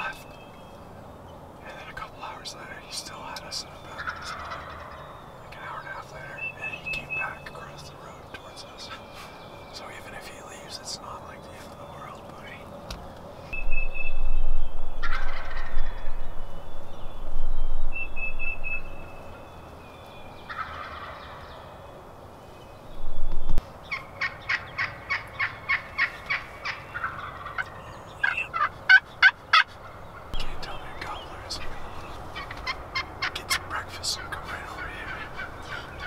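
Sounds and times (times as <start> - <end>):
turkey gobbling: 4.0 - 5.0, 15.0 - 15.8, 20.5 - 21.6, 23.9 - 30.3, 32.3 - 36.0
turkey short calls: 4.0 - 5.0, 24.2 - 29.7.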